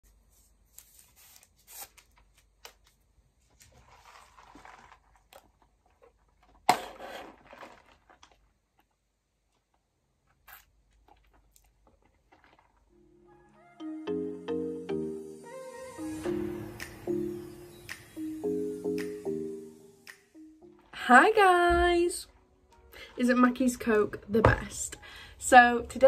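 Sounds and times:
straw wrapper rustling and tearing: 0:00.7 - 0:09.0, 0:10.2 - 0:13.1
crackle: 0:00.8 - 0:13.1.

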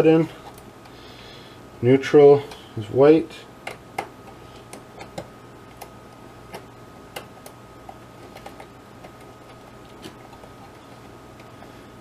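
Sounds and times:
faint steady hum: 0:00.0 - 0:12.0
wire clicks and taps on terminals: 0:03.6 - 0:11.5.

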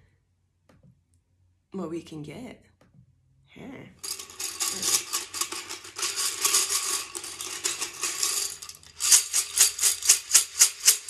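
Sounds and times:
plastic tiles rattling in glass jar: 0:04.0 - 0:11.0.

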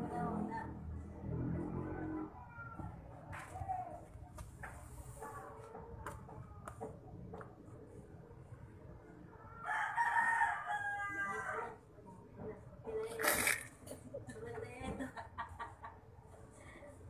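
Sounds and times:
rooster crowing: 0:09.6 - 0:11.8.

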